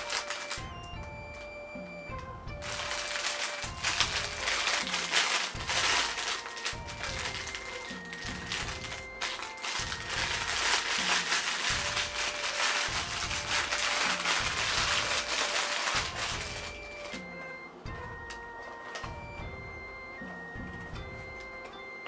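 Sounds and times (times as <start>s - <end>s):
packaging crinkling and rustling: 0.0s - 0.7s, 2.6s - 17.3s
background music: 0.0s - 22.0s.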